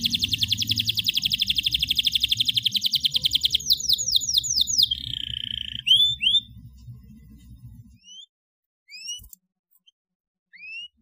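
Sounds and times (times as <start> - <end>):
canary singing: 0.0 - 6.6, 8.0 - 8.3, 8.9 - 9.3, 10.5 - 11.0.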